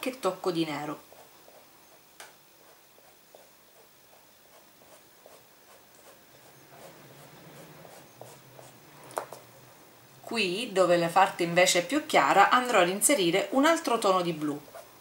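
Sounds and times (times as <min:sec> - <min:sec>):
pastel scratching on fabric: 0:00.8 - 0:08.8.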